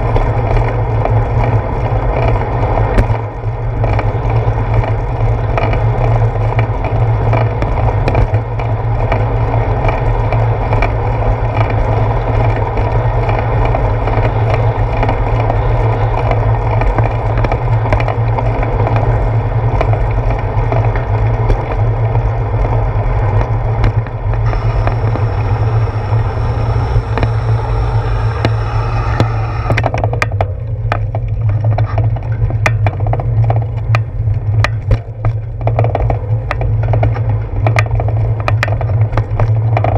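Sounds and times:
bicycle rolling over wet pavement: 0:00.0 - 0:39.9
bike clicks and rattles: 0:00.0 - 0:39.9
wind on microphone: 0:00.0 - 0:39.9
high hiss: 0:24.5 - 0:29.8.

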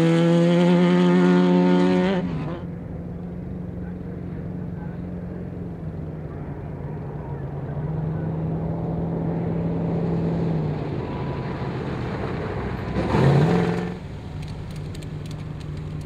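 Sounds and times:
truck engine running: 0:00.8 - 0:16.0
tyres on dirt: 0:09.3 - 0:16.0.

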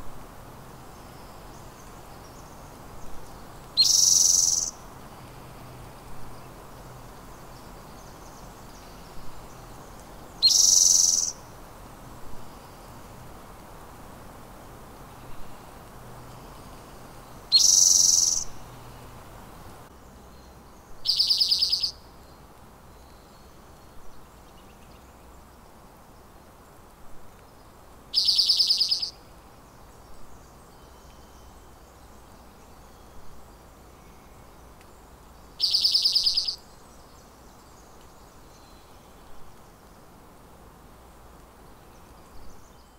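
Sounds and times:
bird singing buzzy trills: 0:00.9 - 0:04.8, 0:06.4 - 0:11.5, 0:16.2 - 0:19.1, 0:20.0 - 0:25.2, 0:27.6 - 0:39.8.

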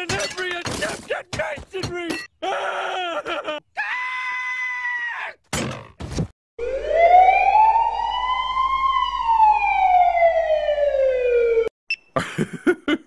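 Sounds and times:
siren-like wail: 0:06.6 - 0:11.7.

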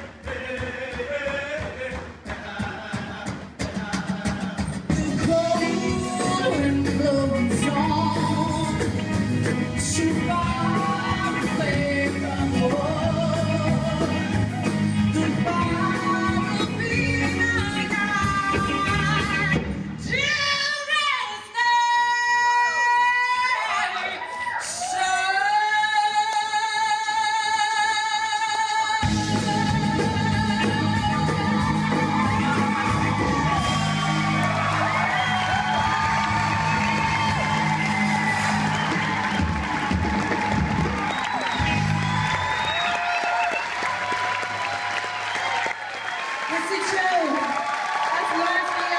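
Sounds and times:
frame hand drums: 0:00.0 - 0:14.8
steady drum beat: 0:00.0 - 0:19.9, 0:29.0 - 0:42.8
acoustic and electric guitars: 0:02.8 - 0:20.0, 0:29.0 - 0:42.9
woman singing: 0:04.9 - 0:09.1, 0:09.8 - 0:23.8, 0:24.6 - 0:33.9.

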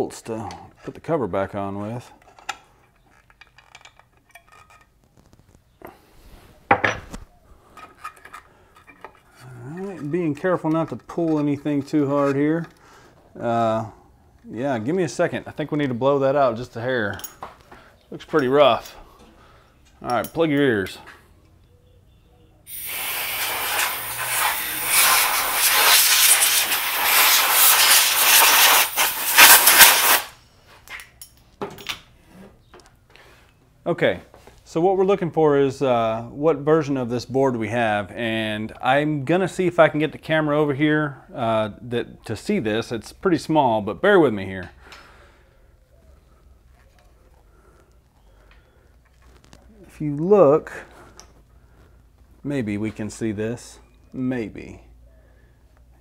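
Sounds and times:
compressed air hissing: 0:22.7 - 0:30.4
short air blasts: 0:22.7 - 0:30.4.

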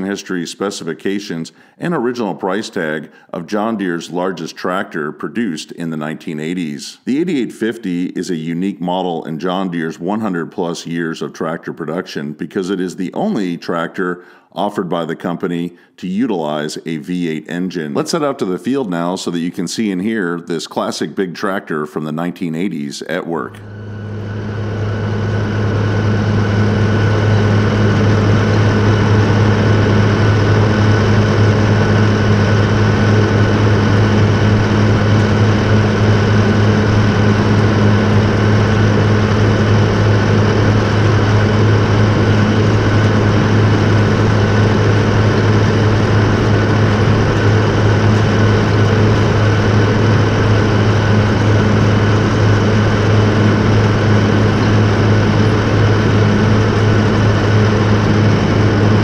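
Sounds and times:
tractor diesel engine droning: 0:23.5 - 0:59.0.

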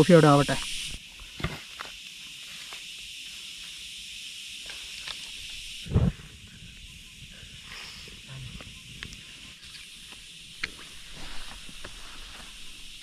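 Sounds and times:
steady hiss: 0:00.0 - 0:13.0
wood and stones knocking on ground: 0:01.4 - 0:01.9.

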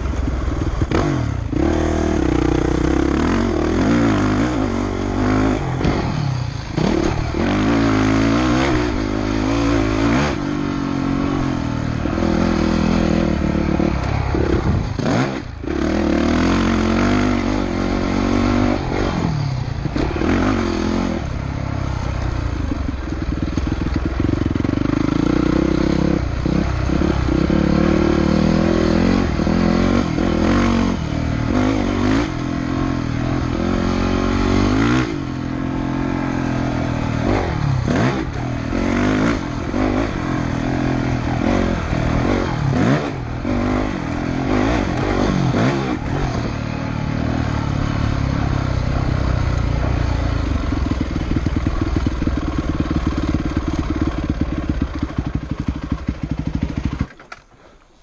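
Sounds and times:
dirt bike engine revving: 0:00.0 - 0:57.3.

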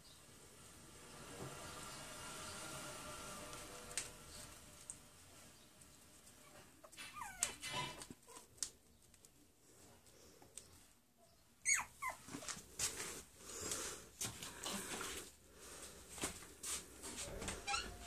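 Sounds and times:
puppies whimpering and yipping: 0:06.4 - 0:08.5, 0:11.6 - 0:12.6, 0:17.4 - 0:18.0.

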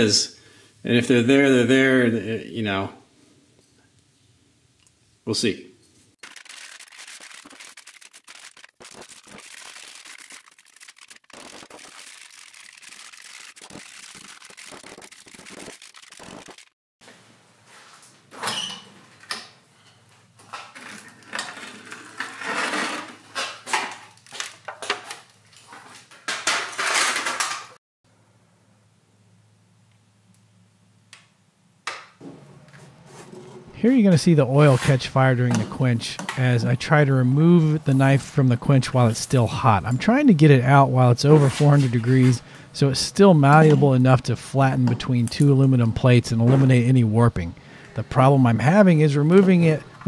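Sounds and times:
foil crinkling: 0:06.2 - 0:16.7, 0:24.0 - 0:25.8.

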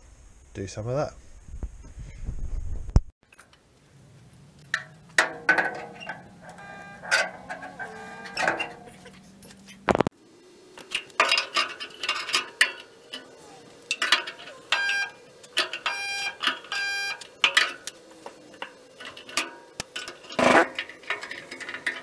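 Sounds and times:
welder arms clanking on metal: 0:04.6 - 0:09.0, 0:10.8 - 0:22.0
spot welder buzzing: 0:05.5 - 0:08.9, 0:12.5 - 0:21.0.

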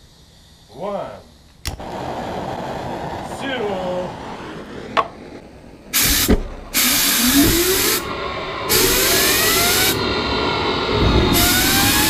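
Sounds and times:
turbine whine rising: 0:00.0 - 0:12.0
jet engine starter bursts: 0:05.9 - 0:12.0.

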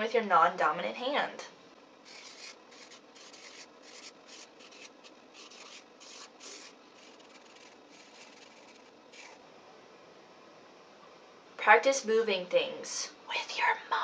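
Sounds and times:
marker scratching on paper: 0:02.1 - 0:09.4.

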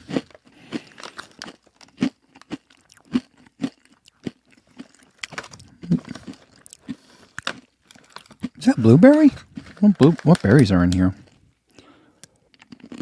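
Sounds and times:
granola crunching while chewed: 0:00.0 - 0:13.0.

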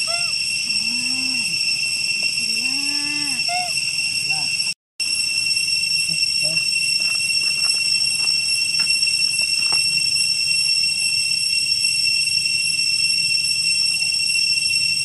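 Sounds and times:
cicada chorus drone: 0:00.0 - 0:15.0
rustling of dry leaves: 0:06.0 - 0:10.3.

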